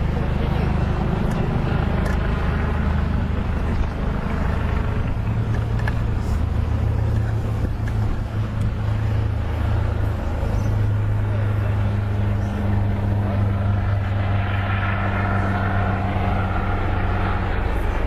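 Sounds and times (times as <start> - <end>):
vehicle engine and road drone: 0.0 - 18.0.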